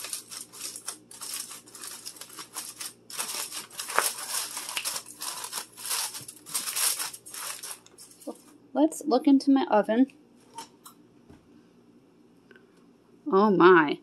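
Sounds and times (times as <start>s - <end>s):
aluminum foil crinkling: 0.0s - 8.5s.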